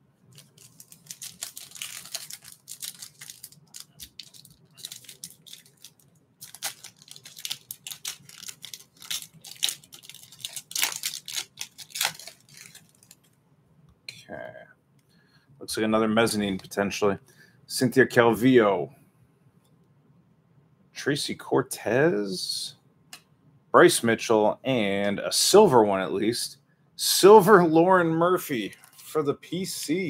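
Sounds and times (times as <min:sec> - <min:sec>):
foil wrapper tearing and crinkling: 0:00.3 - 0:13.2.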